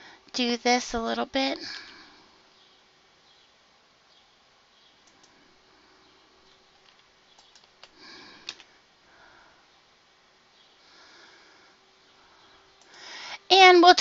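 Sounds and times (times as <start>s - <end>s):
steady low hum: 0.0s - 14.0s
mouse and keyboard clicks: 6.8s - 8.7s
soft breath: 7.9s - 9.8s, 10.7s - 13.5s.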